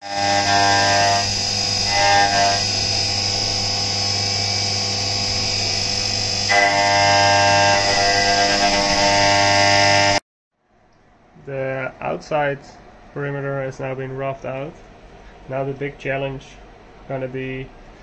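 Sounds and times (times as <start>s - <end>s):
milling machine whine: 0.0s - 10.2s.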